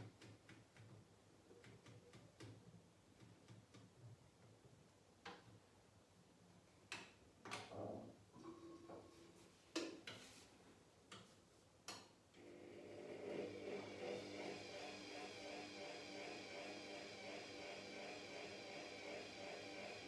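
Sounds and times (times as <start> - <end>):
low mechanical hum: 12.3 - 20.0.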